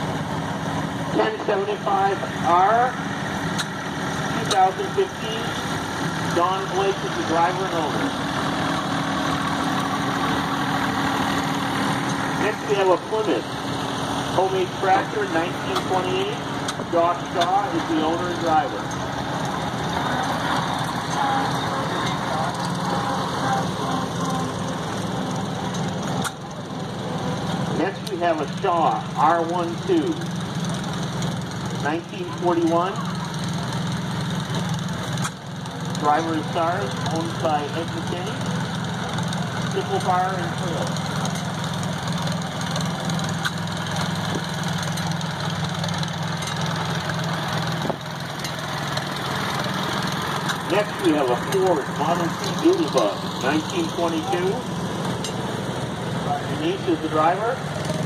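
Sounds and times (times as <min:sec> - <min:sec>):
tractor engine running slowly: 0:00.0 - 0:58.0.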